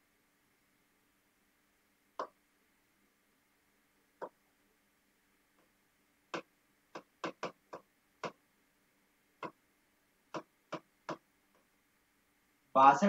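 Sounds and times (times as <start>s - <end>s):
chalk tapping on blackboard: 6.3s - 8.4s, 10.3s - 11.7s.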